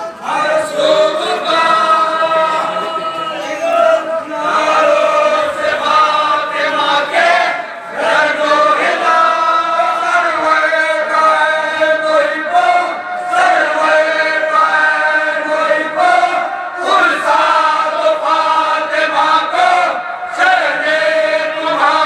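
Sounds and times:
men chanting in unison: 0.2s - 22.0s.

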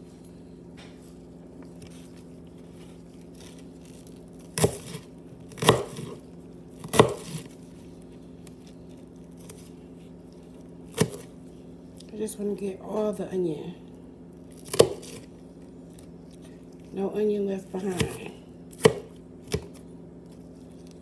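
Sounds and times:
knife chopping on plastic board: 4.6s - 6.2s, 6.8s - 7.5s, 10.9s - 11.3s, 14.6s - 15.2s, 17.8s - 19.8s.

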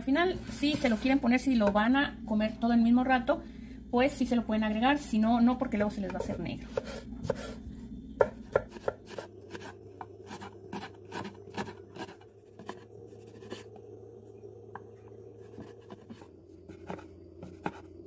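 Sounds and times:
knife chopping on wooden board: 6.1s - 7.5s, 8.2s - 9.7s.

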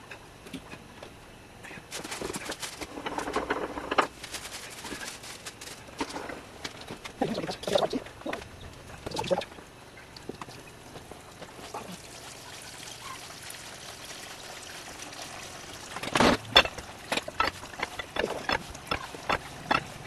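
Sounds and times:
juice trickling into tub: 10.1s - 18.9s.

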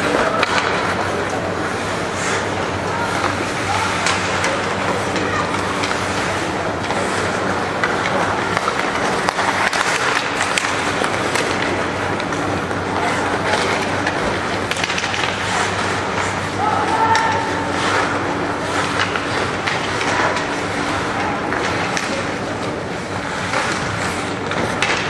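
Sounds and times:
skates scraping ice: 0.0s - 25.0s
sticks clacking on puck: 0.0s - 25.0s.

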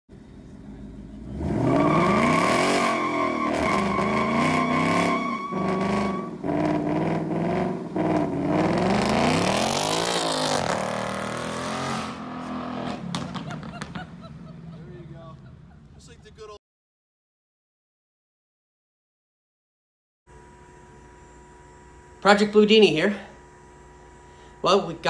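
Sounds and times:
car engine revving hard: 1.2s - 15.1s
steady high whine: 20.3s - 25.0s.

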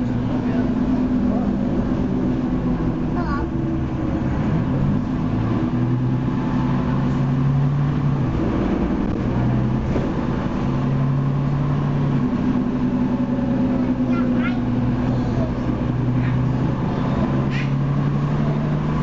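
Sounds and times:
bus diesel engine running: 0.0s - 19.0s.

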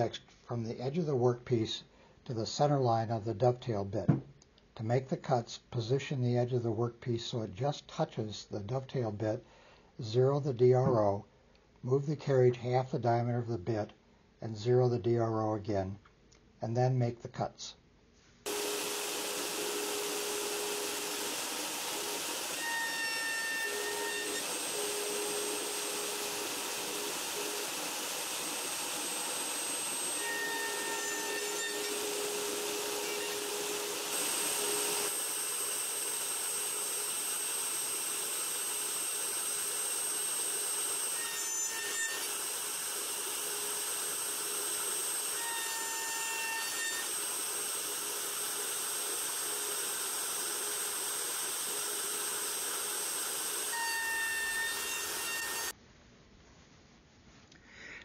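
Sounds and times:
router whirring and whining: 18.5s - 55.7s.

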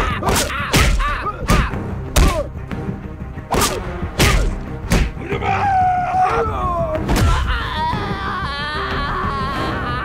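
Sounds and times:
background music: 0.0s - 10.0s
pained vocal cry: 5.4s - 10.0s.

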